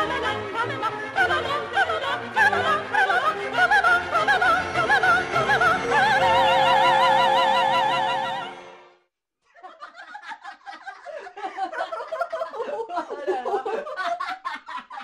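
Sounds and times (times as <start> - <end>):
operatic singing: 0.0 - 8.9
person chuckling: 9.6 - 15.0.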